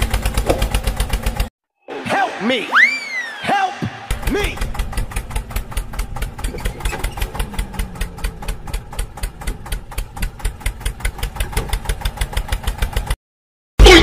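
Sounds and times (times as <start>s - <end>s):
tractor engine idling: 0.0s - 1.5s, 4.1s - 13.2s.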